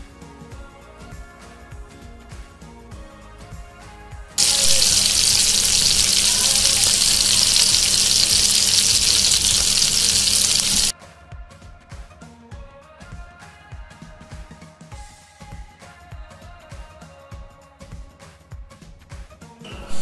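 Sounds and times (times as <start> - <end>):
background music with a beat: 0.0 - 4.4, 10.9 - 19.7
fish sizzling in hot oil: 4.4 - 10.9.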